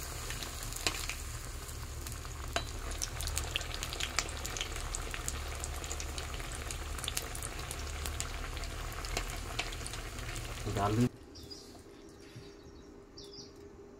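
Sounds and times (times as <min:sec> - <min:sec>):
fritters deep-frying in oil: 0:00.0 - 0:11.1
low steady hum: 0:00.0 - 0:13.9.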